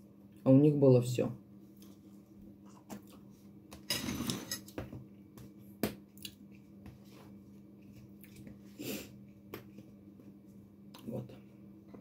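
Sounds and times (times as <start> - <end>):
dishes and cutlery clattering: 3.9 - 4.7.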